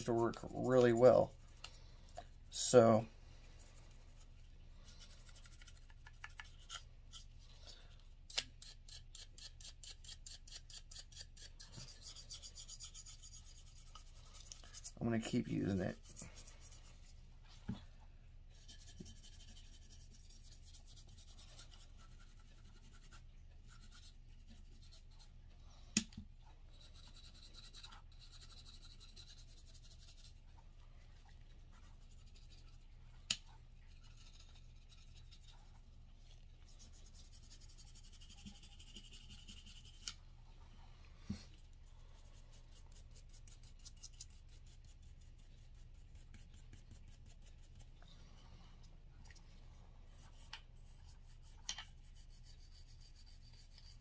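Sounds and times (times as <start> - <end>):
brush scrubbing metal parts: 0.0 - 7.4, 8.3 - 17.2.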